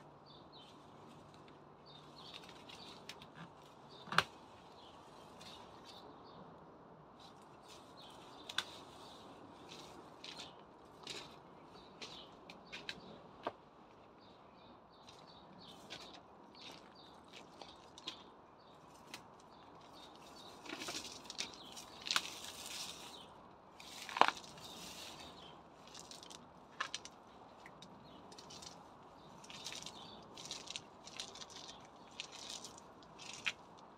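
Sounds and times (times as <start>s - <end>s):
stems snapping: 2.2s - 4.4s, 8.5s - 8.8s, 20.6s - 22.8s, 25.9s - 28.8s, 29.4s - 33.8s
leafy weeds rustling: 7.2s - 13.1s, 18.8s - 33.9s.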